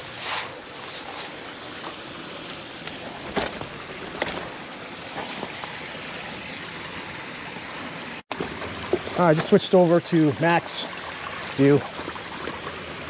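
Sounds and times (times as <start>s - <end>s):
bike knocks and rattles: 3.1s - 5.8s.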